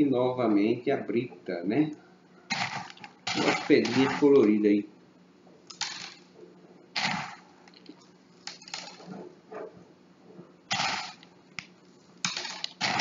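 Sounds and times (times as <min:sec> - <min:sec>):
gravel scraping and rattling: 0:02.5 - 0:04.6, 0:07.0 - 0:09.3.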